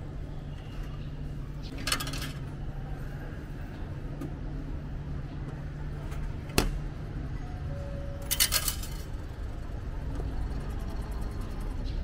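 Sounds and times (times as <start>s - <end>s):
coins clinking into metal tray: 8.2s - 9.2s.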